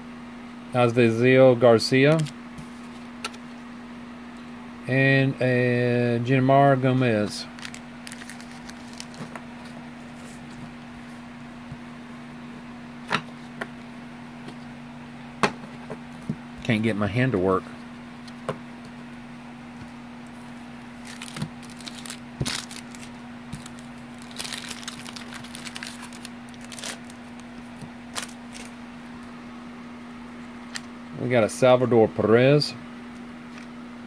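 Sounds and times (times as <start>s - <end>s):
electrical hum and hiss: 0.0s - 34.0s
cards rustling and shuffling: 1.9s - 3.4s, 7.4s - 10.7s, 20.4s - 28.8s.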